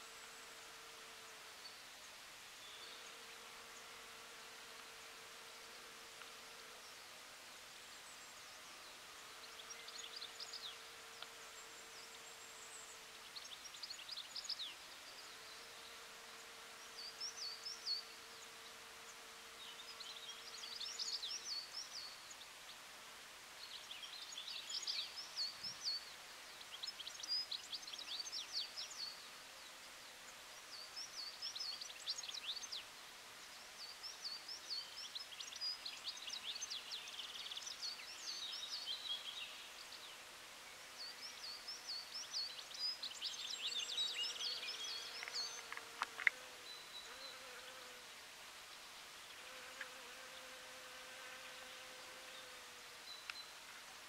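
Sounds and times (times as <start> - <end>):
bee buzzing: 44.3 - 48.1, 49.4 - 53.0.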